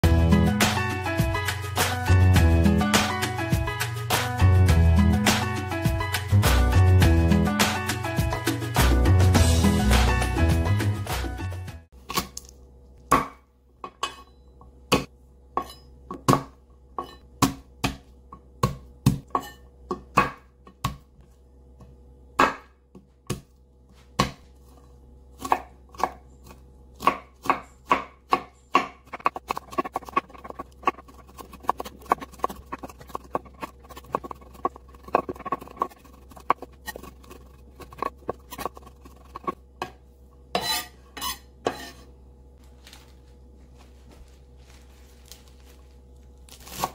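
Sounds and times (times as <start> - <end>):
knife chopping on wooden board: 22.4 - 23.5, 24.2 - 24.4, 27.0 - 40.0.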